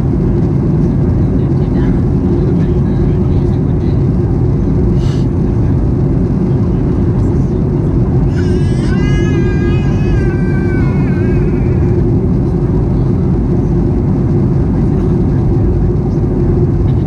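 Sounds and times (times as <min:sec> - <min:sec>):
airplane cabin roar: 0:00.0 - 0:17.0.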